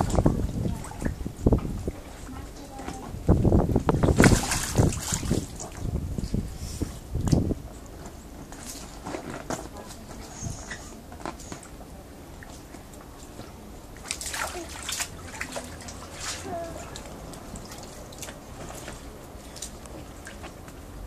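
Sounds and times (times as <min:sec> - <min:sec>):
water splashing in paddling pool: 0:00.0 - 0:03.0, 0:03.9 - 0:06.0, 0:11.6 - 0:21.0.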